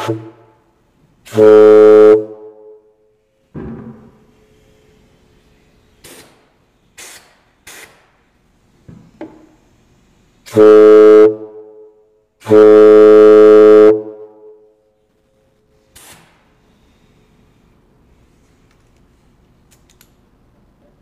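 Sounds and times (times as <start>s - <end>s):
air horn blasts: 0.0s - 0.7s, 1.3s - 3.0s, 10.4s - 14.8s
short air hisses: 4.4s - 8.3s, 15.8s - 18.6s.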